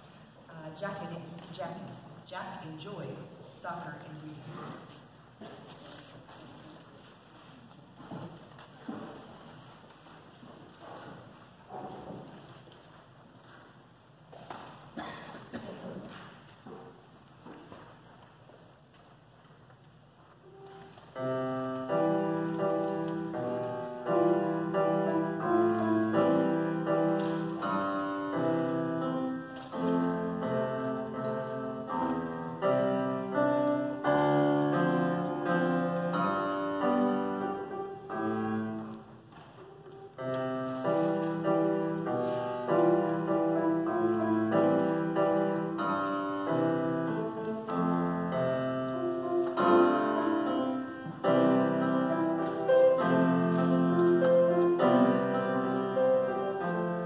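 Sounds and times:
grand piano playing: 0:21.1 - 0:57.0.

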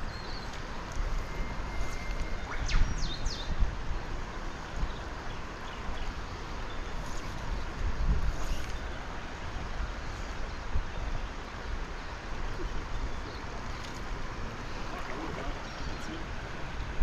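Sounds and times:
river water running over rocks: 0:00.0 - 0:02.4, 0:03.6 - 0:17.0
wind rumble on microphone: 0:00.0 - 0:17.0.

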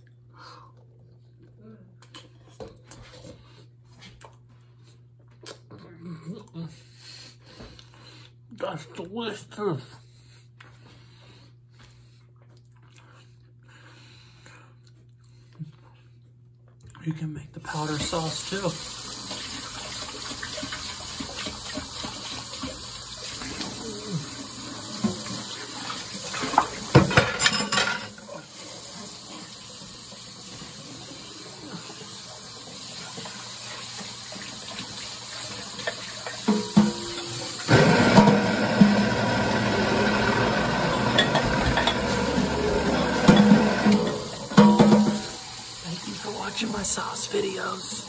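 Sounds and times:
dishes clattering: 0:26.3 - 0:28.3, 0:35.8 - 0:38.4, 0:41.0 - 0:45.4
tap running into sink: 0:41.1 - 0:45.4.

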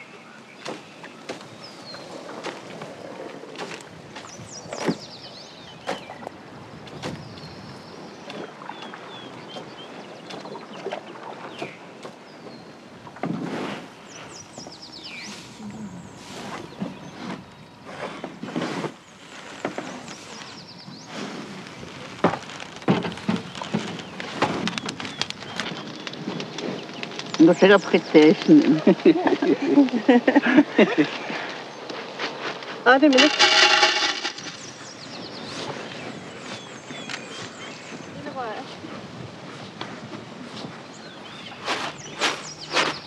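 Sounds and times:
birds chirping: 0:00.0 - 0:12.9, 0:14.0 - 0:18.4, 0:23.2 - 0:32.2, 0:32.8 - 0:39.0, 0:40.8 - 0:43.0
light knocks and grain patter: 0:32.0 - 0:35.0
rice stalks rustling: 0:32.0 - 0:35.8, 0:41.6 - 0:43.0.

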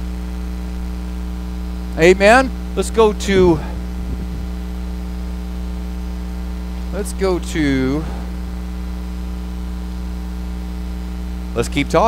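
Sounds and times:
electrical mains hum: 0:00.0 - 0:12.0
person speaking: 0:02.0 - 0:04.6, 0:06.8 - 0:08.4, 0:11.5 - 0:12.0.

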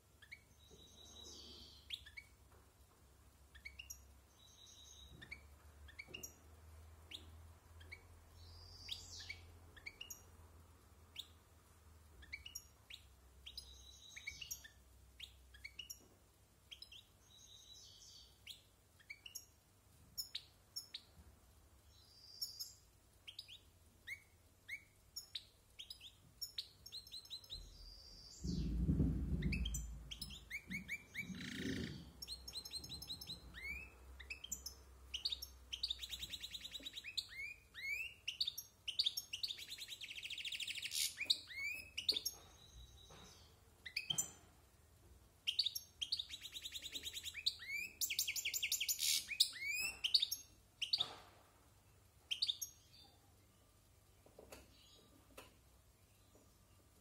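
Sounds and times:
goldfinch singing: 0:07.1 - 0:10.3, 0:22.0 - 0:44.4, 0:45.5 - 0:51.0
low rumble: 0:28.4 - 0:30.4.

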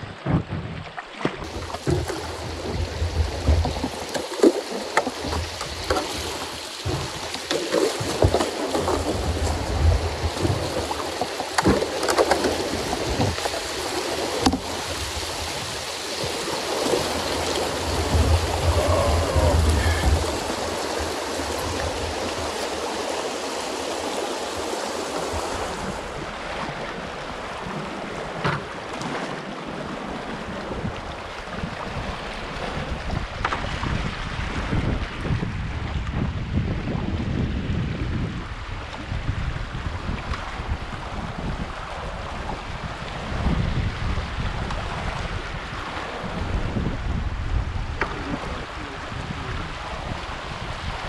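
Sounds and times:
sharp knocks on canoe: 0:00.0 - 0:09.6, 0:10.3 - 0:13.6, 0:14.4 - 0:14.7, 0:28.4 - 0:29.3, 0:33.4 - 0:34.0
river rapids rushing: 0:01.5 - 0:28.3.

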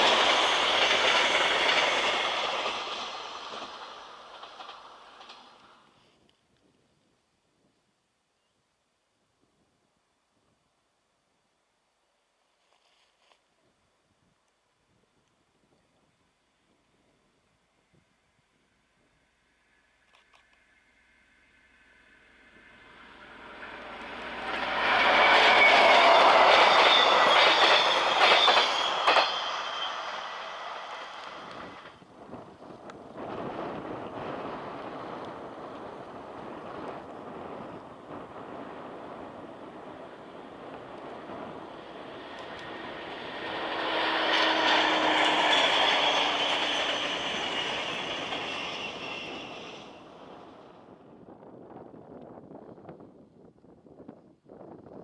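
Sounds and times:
wheels clacking over rail joints: 0:00.0 - 0:05.8, 0:23.3 - 0:32.0, 0:40.7 - 0:50.0
diesel train passing: 0:00.0 - 0:06.0, 0:18.6 - 0:51.2
high wheel squeal: 0:22.2 - 0:31.5, 0:41.8 - 0:50.4.

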